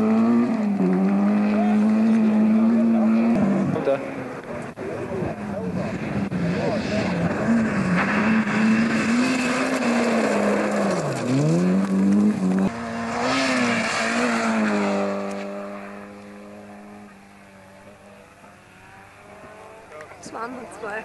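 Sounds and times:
rally car engine at full throttle: 0.0 - 21.0.

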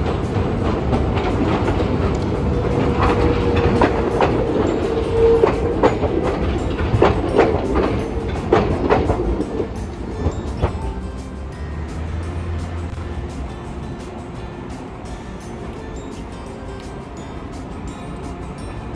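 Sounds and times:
streetcar rumbling past: 0.0 - 18.9
wheels clacking over rail joints: 0.0 - 18.9.

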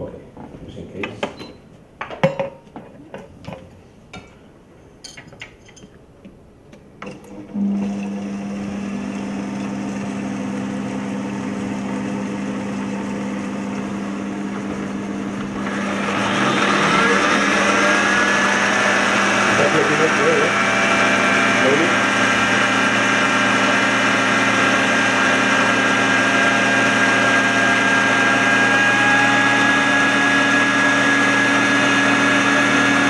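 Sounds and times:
blender motor humming: 7.3 - 33.0.

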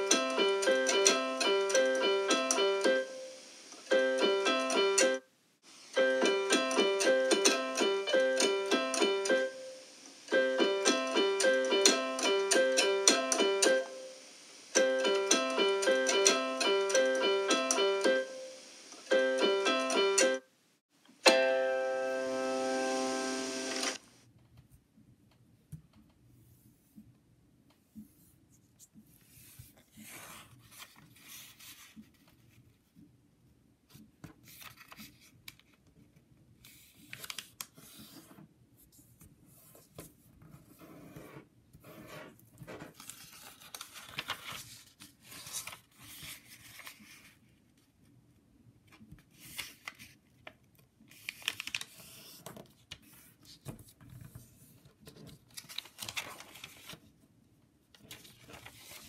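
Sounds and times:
paper rustling and crinkling: 29.2 - 32.8, 34.3 - 38.4, 42.6 - 47.9, 48.9 - 57.2, 57.9 - 59.0
paper crackles: 34.4 - 35.9, 36.6 - 38.3, 42.9 - 47.6, 49.2 - 57.1, 57.9 - 59.0.

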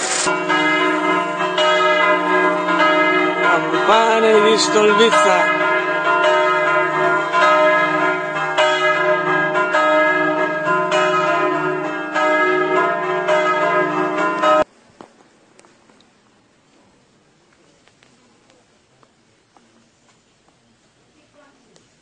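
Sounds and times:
church bells ringing: 0.0 - 14.7.

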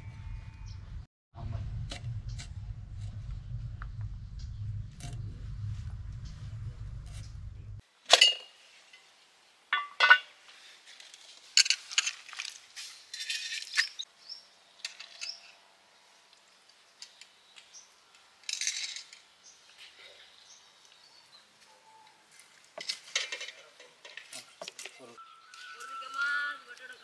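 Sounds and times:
low hum: 0.0 - 7.8.

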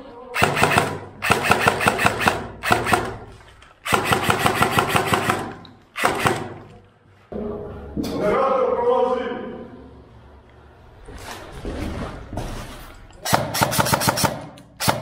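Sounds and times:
airsoft rifle bursts: 0.4 - 6.8, 13.2 - 15.0.

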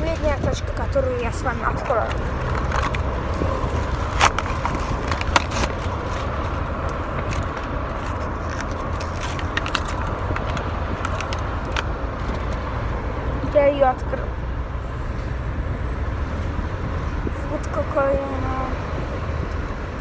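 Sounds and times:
plastic packaging crackling torn open: 2.1 - 11.9.

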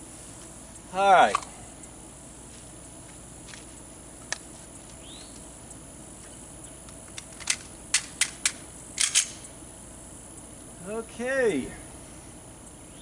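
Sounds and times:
handgun metallic clicks: 6.8 - 9.4.

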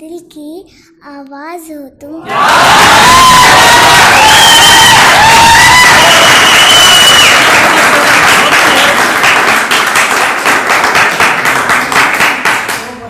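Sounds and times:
audience cheering: 2.3 - 10.7
audience clapping: 2.3 - 13.0.

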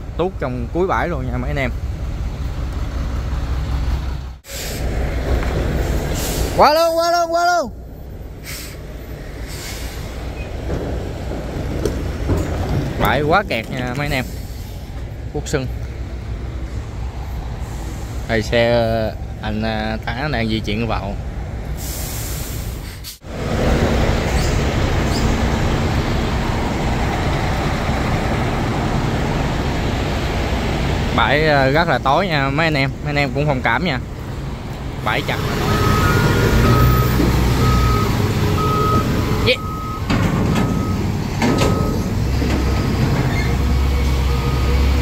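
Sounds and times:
truck diesel engines idling: 0.0 - 45.0
reversing alarm beeping: 35.6 - 42.1
sharp metallic knocks: 40.0 - 43.4.

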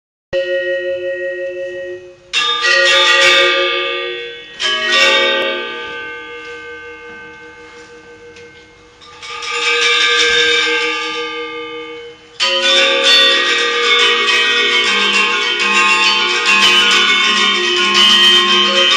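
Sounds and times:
bronze metallophones ringing: 0.4 - 18.9.

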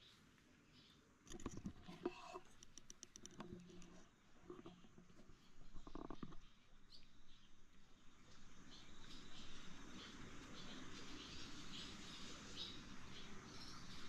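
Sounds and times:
faint clicks: 1.2 - 6.6
small ticks: 1.2 - 7.1.

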